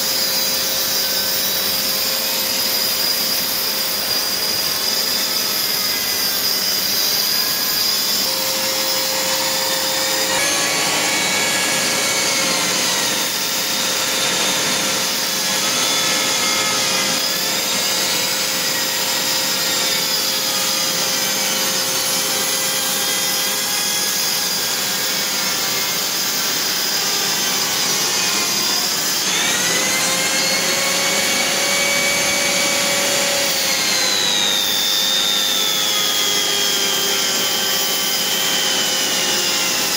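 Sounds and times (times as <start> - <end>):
rotary tool grinding grout: 0.0 - 39.9
vacuum cleaner running: 3.2 - 16.4, 23.4 - 39.9.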